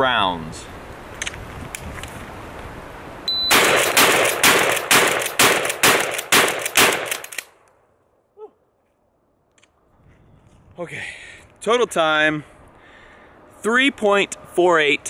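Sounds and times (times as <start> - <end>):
shot timer beep: 3.3 - 3.6
shotgun firing: 3.5 - 7.4.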